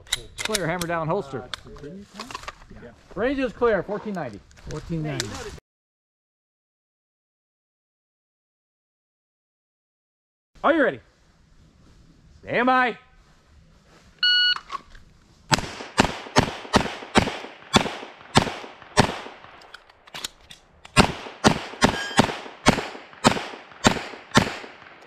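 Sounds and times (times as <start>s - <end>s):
pistol shots: 15.5s - 19.6s, 20.9s - 25.0s
shot timer beep: 21.9s - 22.3s.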